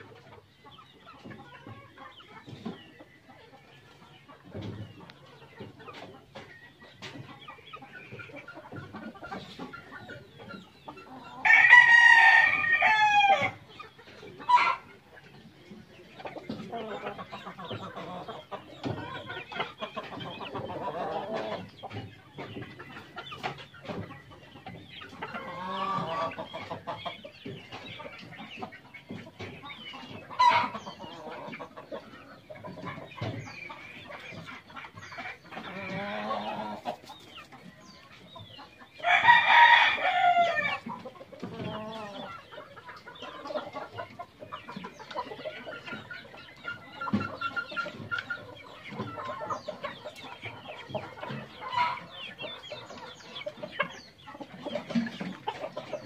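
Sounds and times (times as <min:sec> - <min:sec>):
chickens clucking: 0:00.0 - 0:56.0
rooster crowing: 0:11.4 - 0:13.5.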